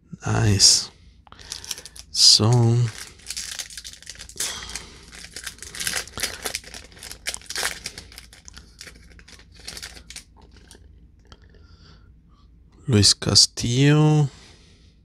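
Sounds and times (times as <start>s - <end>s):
foil wrapper crinkling and tearing: 1.4s - 10.9s.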